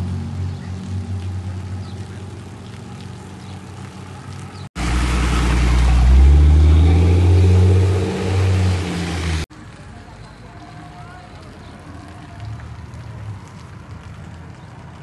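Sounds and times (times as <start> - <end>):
vehicle engine running: 0.0 - 9.5.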